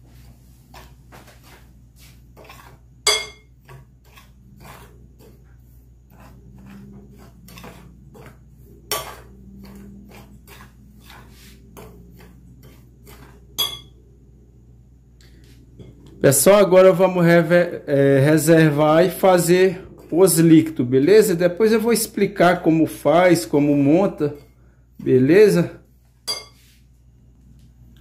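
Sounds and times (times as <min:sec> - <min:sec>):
metal spoon stirring in glass bowl: 0:02.4 - 0:14.0
spoon clinking on glass bowl: 0:03.0 - 0:03.5, 0:13.6 - 0:14.0, 0:26.2 - 0:26.6.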